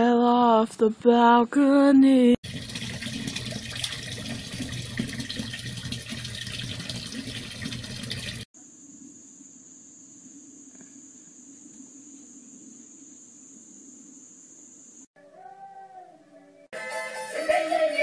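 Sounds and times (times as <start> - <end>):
tap water running into sink: 2.4 - 8.5.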